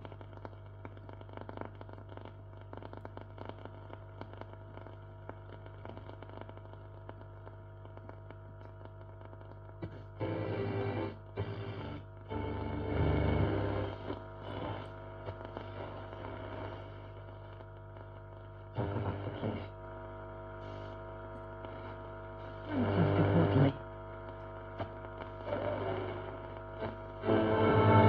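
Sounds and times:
radio hum: 0:00.0 - 0:28.0
radio broadcast bursts: 0:24.6 - 0:28.0.

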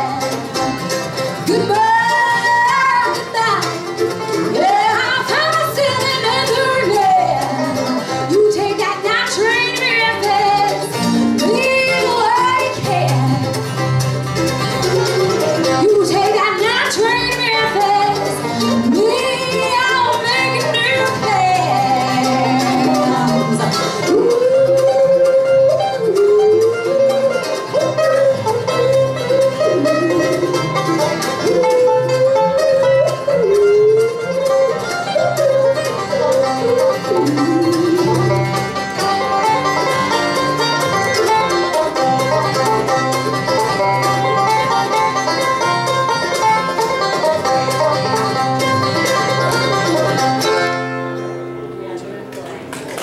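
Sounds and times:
banjo picking: 0:00.0 - 0:53.0
guitar: 0:00.0 - 0:53.0
woman singing: 0:01.4 - 0:13.4, 0:15.8 - 0:30.4.

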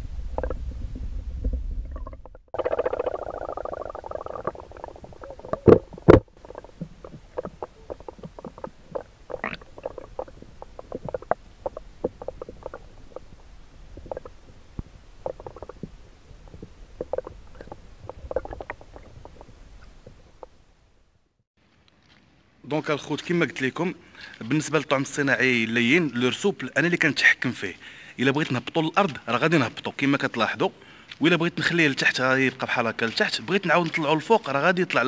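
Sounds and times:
loud underwater knocks: 0:04.4 - 0:13.2.

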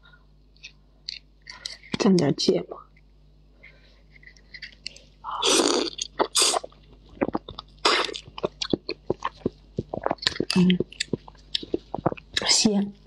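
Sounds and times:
wet chewing and lip smacks: 0:05.9 - 0:12.5.

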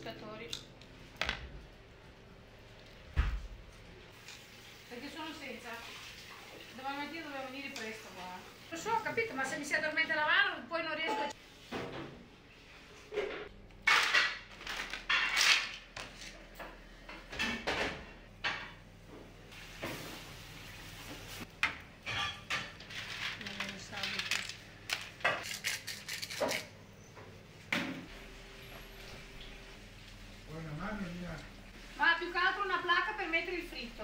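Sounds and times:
shellfish rattling in pans: 0:22.0 - 0:26.7.

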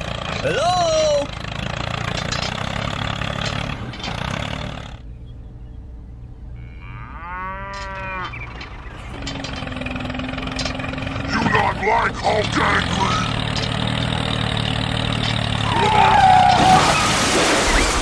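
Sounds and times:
small engine running: 0:00.0 - 0:05.1, 0:08.4 - 0:16.8
cow mooing: 0:06.6 - 0:08.4.

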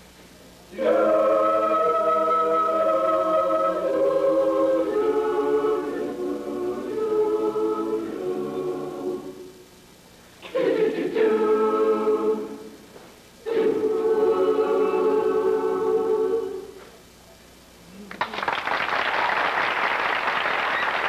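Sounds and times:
choir singing held chords: 0:00.7 - 0:09.7, 0:10.4 - 0:16.8
audience applause: 0:18.1 - 0:21.0.

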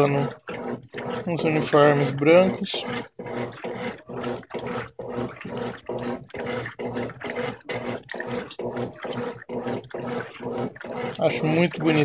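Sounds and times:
washing machine motor hum: 0:00.0 - 0:12.0
water churning: 0:00.0 - 0:12.0.

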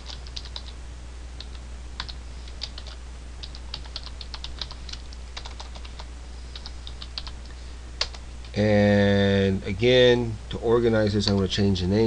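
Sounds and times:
keyboard keys clicking: 0:00.0 - 0:00.8, 0:01.4 - 0:07.3
steady low hum: 0:00.0 - 0:12.0.

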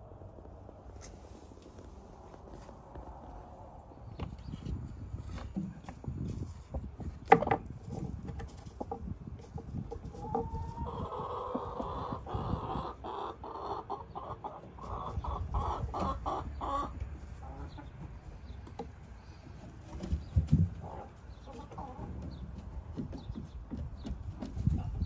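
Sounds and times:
hen clucking: 0:05.3 - 0:25.0.

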